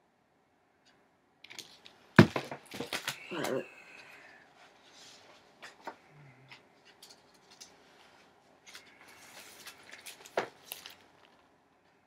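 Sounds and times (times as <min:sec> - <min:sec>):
paper rustle: 0:07.4 - 0:11.5.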